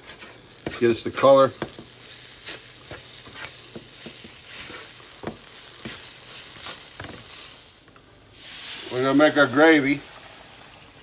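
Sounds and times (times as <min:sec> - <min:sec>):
wooden spatula scraping pan: 0:00.0 - 0:07.4
vegetables sizzling in a pan: 0:00.0 - 0:11.0.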